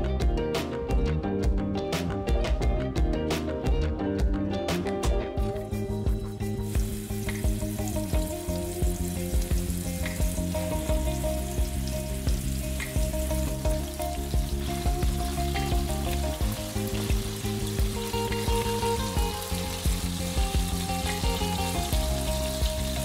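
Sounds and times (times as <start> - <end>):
meatballs sizzling in oil: 5.4 - 23.0.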